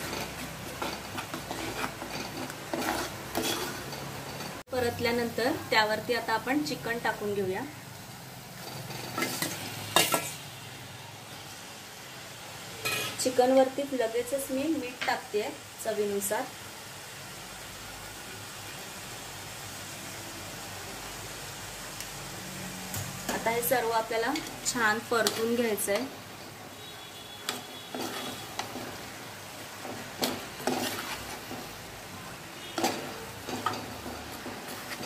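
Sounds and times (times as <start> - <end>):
spatula scraping earthenware pot: 0.0 - 4.6, 27.4 - 29.2, 29.8 - 31.8, 32.6 - 35.0
faint sizzle: 0.0 - 35.0.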